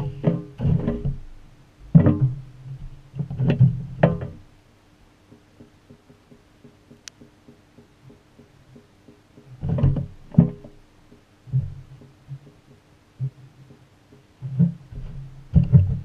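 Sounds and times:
laundry and water thumping: 0:09.1 - 0:10.8, 0:14.1 - 0:16.0.

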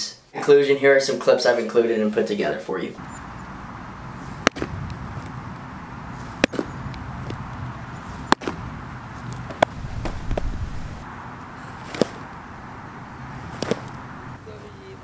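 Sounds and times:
baseballs knocking: 0:03.0 - 0:14.4
low rumble: 0:09.7 - 0:11.1.

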